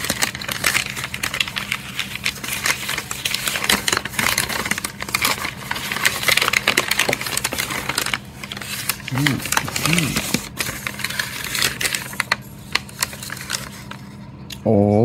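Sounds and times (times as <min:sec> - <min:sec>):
packaging crinkling: 0:00.0 - 0:14.2.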